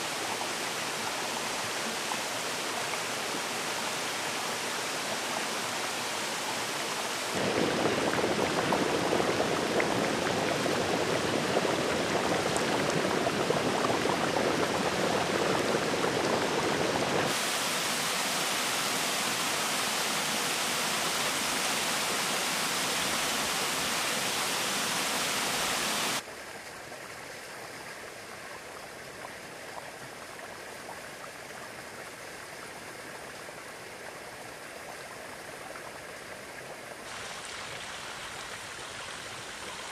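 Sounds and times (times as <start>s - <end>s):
water rushing over rocks: 0.0s - 26.2s, 37.1s - 39.9s.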